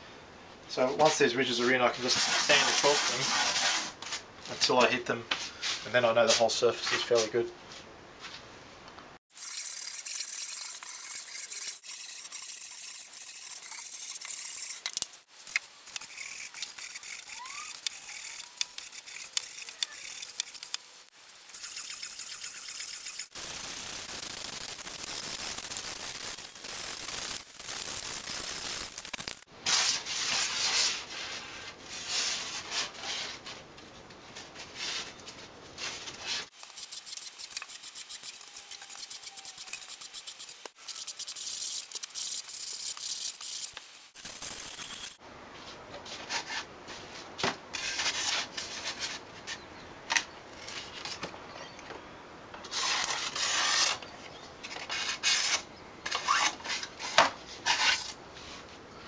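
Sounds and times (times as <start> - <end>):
sanding block on foam: 2.0 - 4.0.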